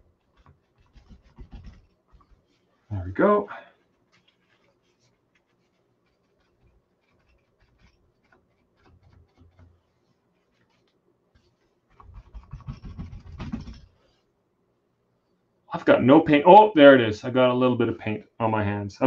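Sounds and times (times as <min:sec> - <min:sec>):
rubbing with rumble from canvas: 0:00.0 - 0:02.9, 0:03.8 - 0:14.2
paper towel scratching on canvas: 0:00.0 - 0:14.2.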